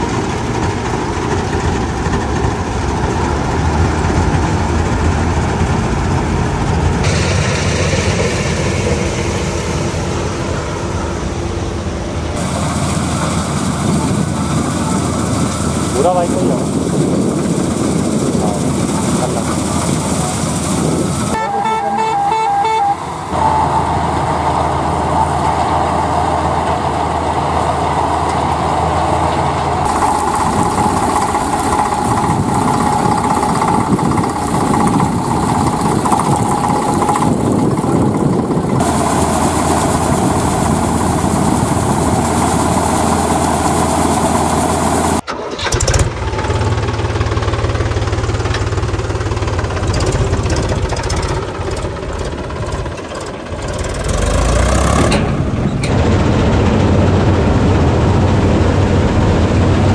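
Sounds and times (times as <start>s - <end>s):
combine harvester running: 0.0s - 59.9s
tractor diesel engine: 0.0s - 59.9s.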